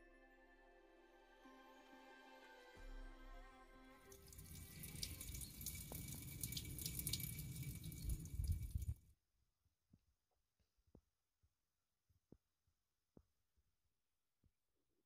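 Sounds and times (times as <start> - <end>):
water splashing into stone basin: 4.1 - 9.0.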